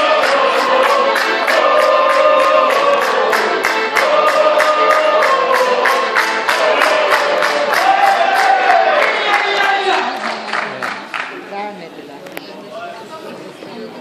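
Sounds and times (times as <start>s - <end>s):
accordion dance tune: 0.0s - 10.2s
group clapping in time: 0.0s - 11.5s.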